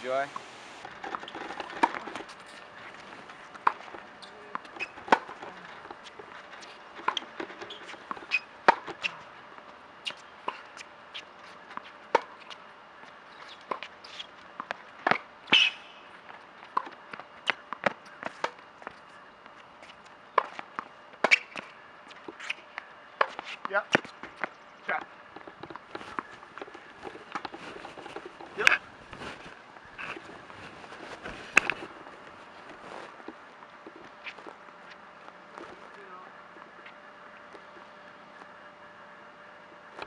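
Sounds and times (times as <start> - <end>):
tennis balls bouncing on court: 3.5 - 10.9, 11.7 - 12.6, 13.4 - 29.2
tennis balls struck by racquets: 3.6 - 5.9, 7.0 - 9.2.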